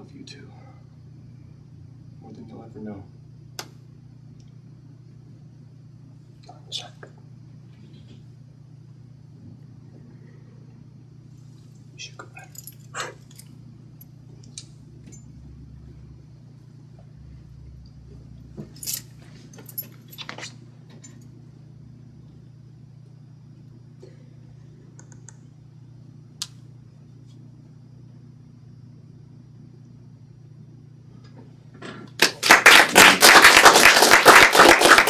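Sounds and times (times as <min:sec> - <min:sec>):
low steady room hum: 0:00.0 - 0:35.0
audience applauding: 0:32.2 - 0:35.0.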